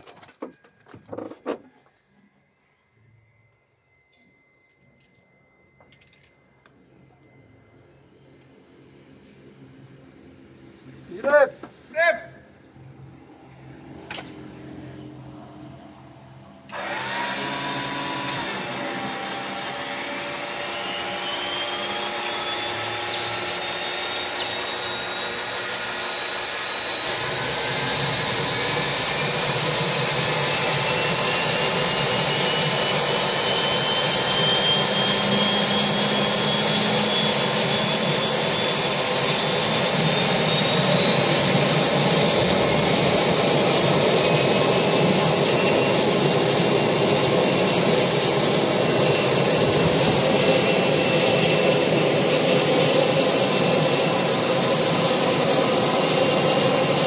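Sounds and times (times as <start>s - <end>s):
propeller engine spooling up: 2.4s - 11.1s, 12.5s - 57.0s
starter whine climbing in pitch: 15.1s - 57.0s.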